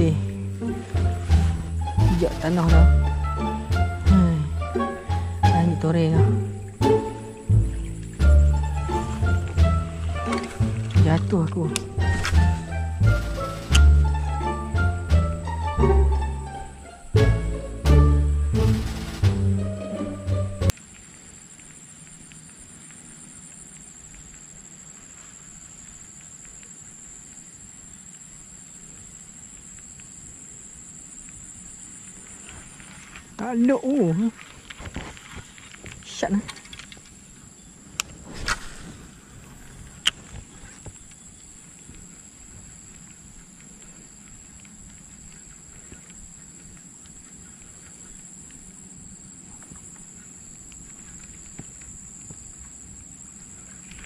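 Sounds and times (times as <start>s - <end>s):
low rumble: 0.0s - 20.7s
high-pitched insect chorus: 0.0s - 54.0s
low wind rumble: 0.0s - 54.0s
faint clicks: 20.7s - 30.4s, 31.2s - 37.2s, 39.4s - 54.0s
faint ticks: 20.7s - 38.7s, 39.4s - 54.0s.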